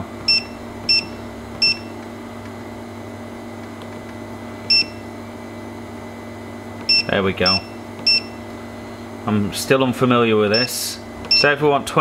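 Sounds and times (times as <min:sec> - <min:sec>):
steady hum: 0:00.0 - 0:12.0
short key beeps: 0:04.7 - 0:05.0, 0:06.9 - 0:08.4, 0:10.5 - 0:11.5.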